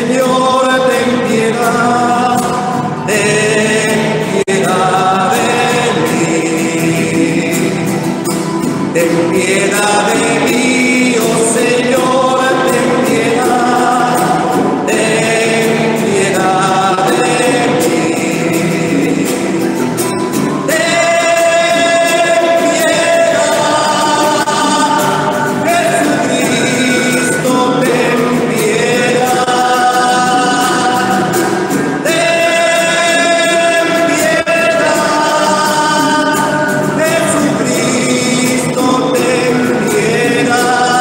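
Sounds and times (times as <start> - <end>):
voices singing a chant: 0.0 - 41.0.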